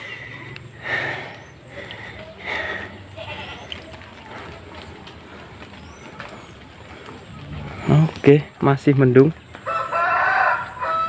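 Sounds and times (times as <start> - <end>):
farm animal bleating: 2.7 - 4.0.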